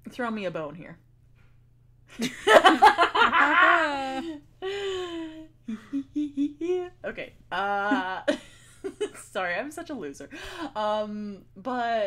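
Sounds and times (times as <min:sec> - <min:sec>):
women laughing: 0:02.2 - 0:07.0, 0:07.6 - 0:09.3.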